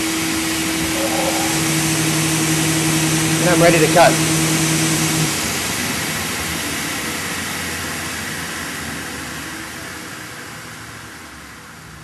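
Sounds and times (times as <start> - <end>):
saw motor hum: 0.7 - 5.4.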